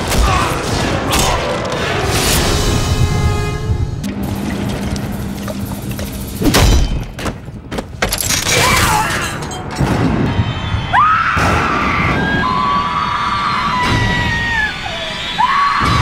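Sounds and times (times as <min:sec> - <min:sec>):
dramatic horror music: 0:00.0 - 0:07.4.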